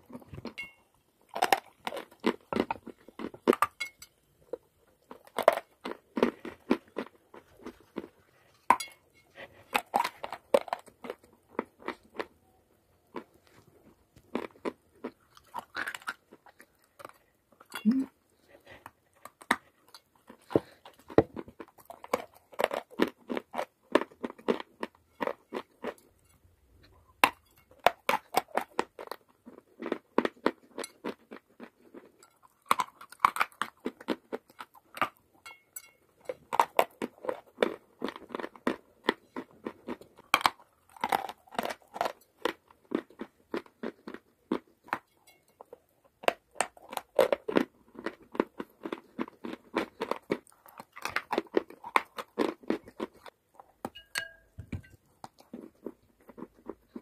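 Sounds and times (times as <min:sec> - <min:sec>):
chalk being chewed crunching: 0:09.3 - 0:12.3, 0:13.1 - 0:26.1, 0:36.2 - 0:53.8, 0:55.0 - 0:57.0.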